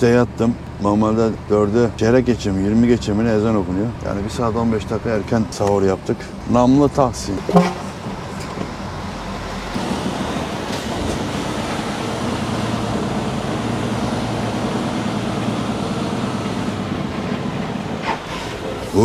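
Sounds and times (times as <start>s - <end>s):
diesel truck engine drone: 0.0s - 19.0s.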